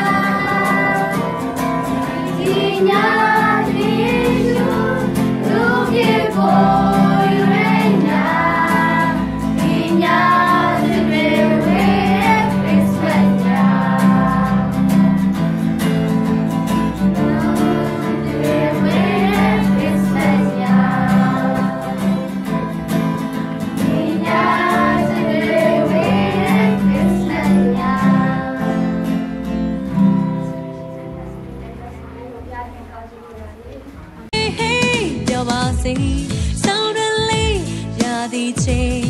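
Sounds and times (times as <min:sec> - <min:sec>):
girls singing together: 0:00.0 - 0:15.4, 0:16.9 - 0:22.6, 0:23.7 - 0:29.2
strummed acoustic guitar: 0:00.0 - 0:33.2.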